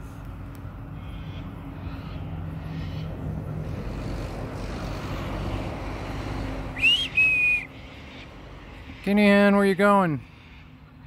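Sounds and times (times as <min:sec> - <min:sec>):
distant engine drone: 0:00.0 - 0:11.0
loud high whistled calls: 0:06.7 - 0:09.5.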